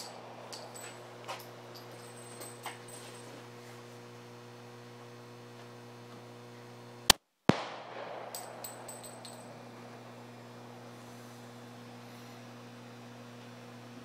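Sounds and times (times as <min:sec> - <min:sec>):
low hum: 0:00.0 - 0:03.6, 0:07.5 - 0:13.3
pistol gunshots: 0:07.5 - 0:10.4
gunshot echo: 0:07.5 - 0:10.6.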